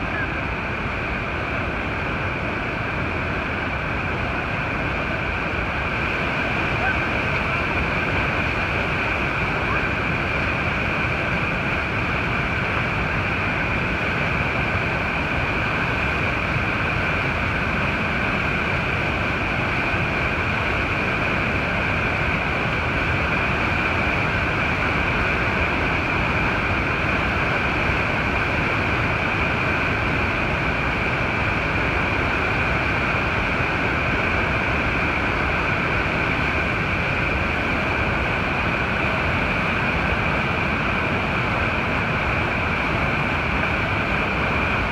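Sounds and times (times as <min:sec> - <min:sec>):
waterfall rushing: 0:00.0 - 0:44.9.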